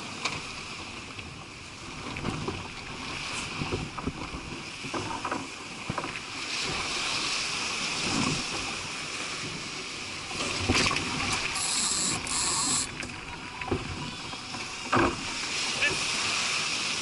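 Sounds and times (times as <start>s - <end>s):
waves slapping and splashing: 0.0s - 17.0s
hull rushing through water: 5.5s - 17.0s
loud hiss: 11.6s - 12.9s.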